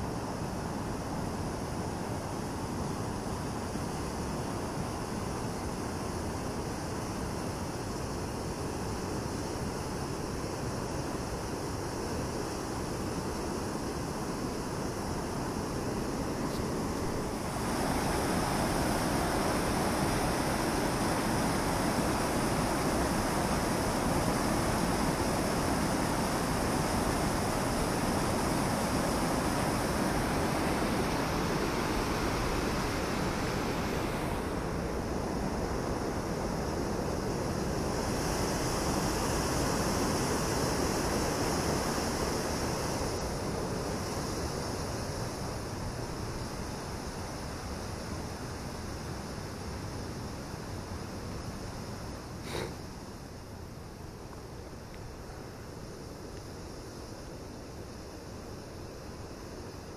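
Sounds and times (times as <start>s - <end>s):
water rushing over weir: 12.3s - 46.0s.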